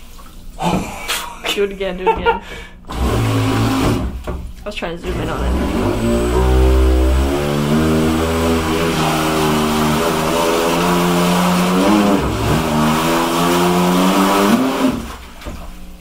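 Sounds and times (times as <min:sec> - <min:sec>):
water churning: 0:02.9 - 0:16.0
electric motors whining: 0:05.0 - 0:15.0.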